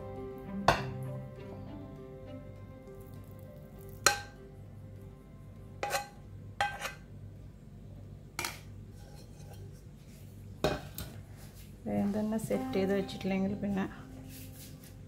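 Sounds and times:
metal spoon scraping pan: 5.8s - 7.1s, 8.9s - 9.7s.

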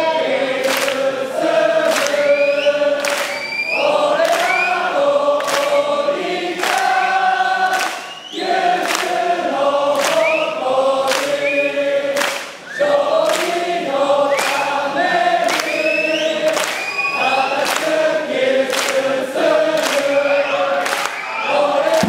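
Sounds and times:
crowd chanting in unison: 0.0s - 22.0s
sharp claps: 0.6s - 1.1s, 1.8s - 5.9s, 6.6s - 7.0s, 7.6s - 9.3s, 9.9s - 10.5s, 11.1s - 11.5s, 12.1s - 13.7s, 14.3s - 14.8s, 15.4s - 22.0s.

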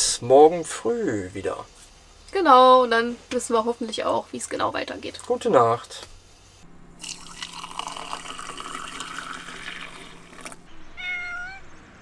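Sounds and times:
liquid pouring into container: 7.0s - 10.6s
cat meowing: 10.8s - 11.8s.

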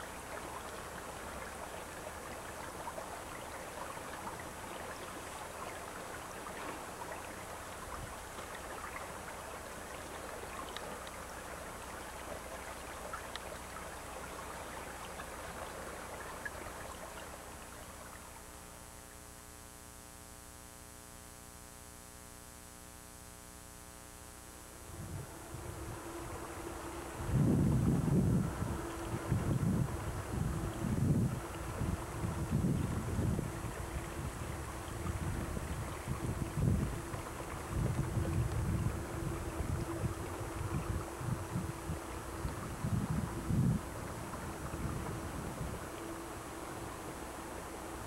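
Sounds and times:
electrical hum: 7.0s - 48.0s
faint ticks: 8.1s - 11.3s, 12.1s - 13.9s.

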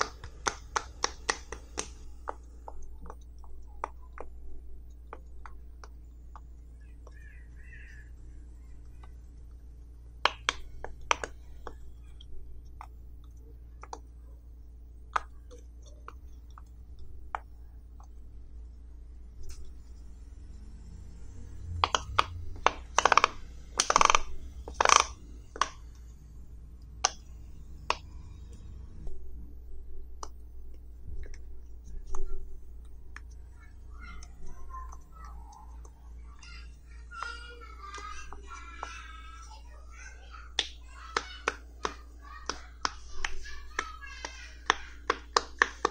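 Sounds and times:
pop-it fidget toy popping: 21.8s - 25.8s.

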